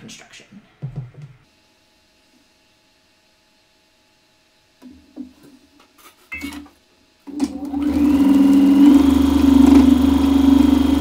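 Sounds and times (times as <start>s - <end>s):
sewing machine stitching: 7.3s - 11.0s.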